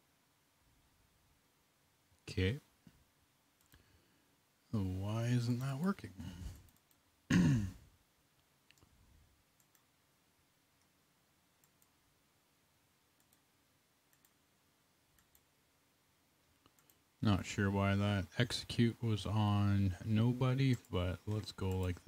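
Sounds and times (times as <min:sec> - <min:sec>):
computer mouse clicks: 0:06.5 - 0:07.0, 0:09.6 - 0:09.9, 0:11.6 - 0:12.0, 0:13.2 - 0:13.5, 0:14.1 - 0:14.4, 0:15.1 - 0:15.5, 0:16.6 - 0:17.0, 0:21.6 - 0:22.0.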